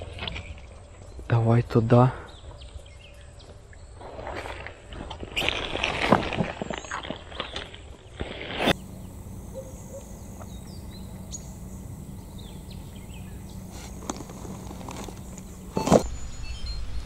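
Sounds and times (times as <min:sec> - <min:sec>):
steady low hum: 0:08.6 - 0:17.0
faint bird chirps: 0:08.8 - 0:17.0.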